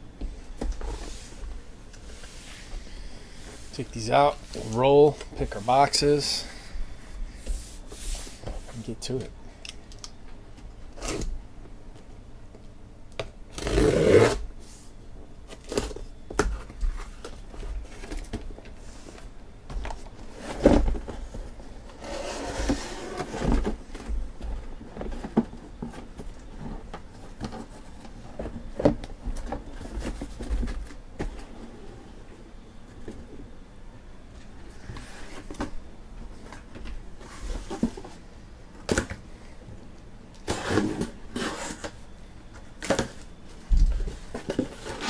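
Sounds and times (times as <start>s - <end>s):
knife cutting packing tape: 13.5s - 14.4s.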